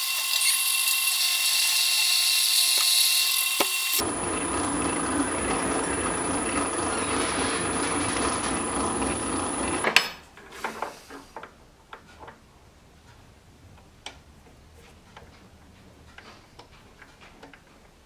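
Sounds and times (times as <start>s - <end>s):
metal lathe whining: 0.0s - 9.9s.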